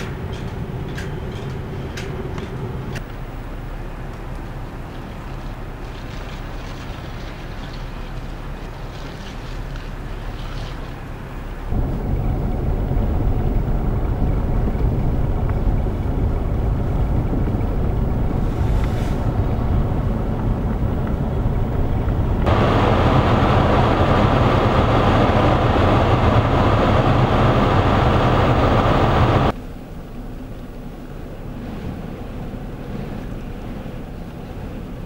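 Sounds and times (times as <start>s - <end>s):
blizzard wind buffeting microphone: 11.0s - 35.0s.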